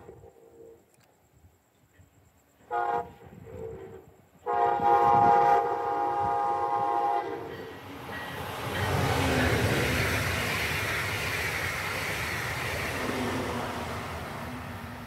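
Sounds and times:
train rumble: 1.8s - 15.0s
train horn blasts: 2.6s - 7.6s.

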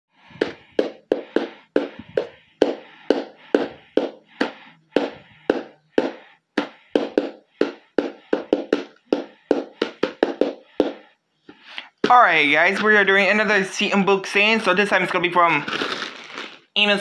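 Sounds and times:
sharp percussive knocks: 2.6s - 11.0s.

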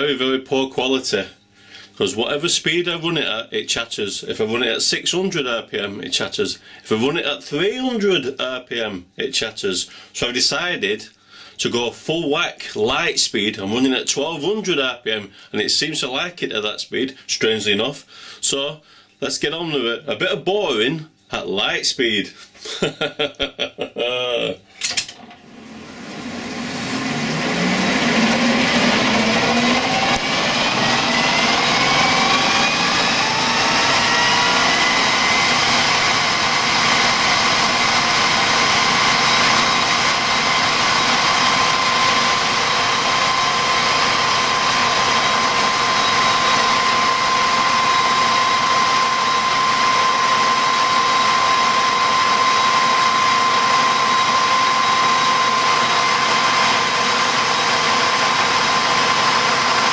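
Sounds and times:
metal lathe whining: 24.8s - 59.9s.

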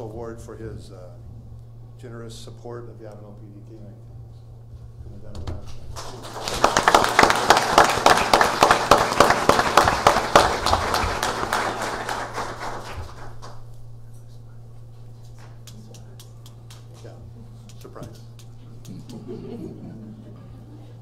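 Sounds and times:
audience applauding: 5.9s - 13.6s.

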